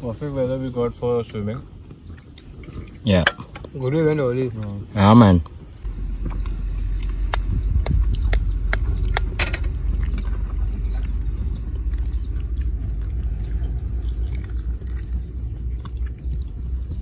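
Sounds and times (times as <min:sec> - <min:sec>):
low rumble: 0:05.4 - 0:17.0.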